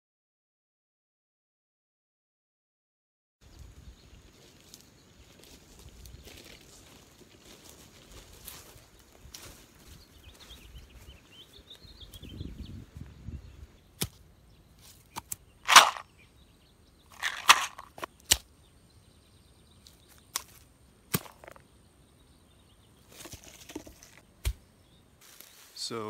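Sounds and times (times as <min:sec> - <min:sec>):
handling clicks: 0:15.2 - 0:16.0, 0:17.2 - 0:18.4.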